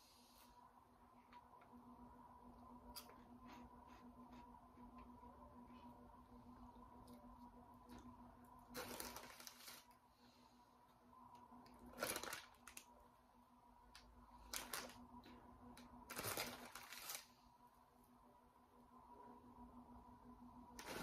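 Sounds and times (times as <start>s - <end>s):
foil snack bag rustling: 8.7s - 10.0s, 11.8s - 12.9s, 14.4s - 15.0s, 16.0s - 17.4s.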